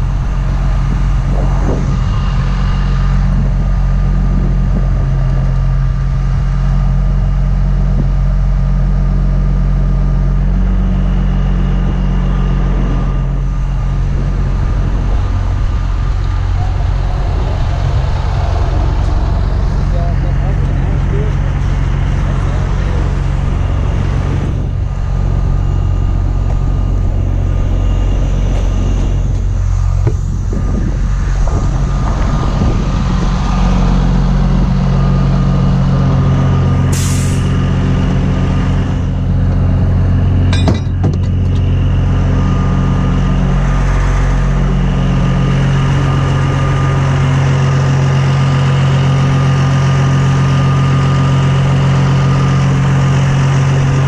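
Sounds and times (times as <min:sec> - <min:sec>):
diesel truck engine running: 0:00.0 - 0:54.0
hiss of air: 0:36.9 - 0:37.5.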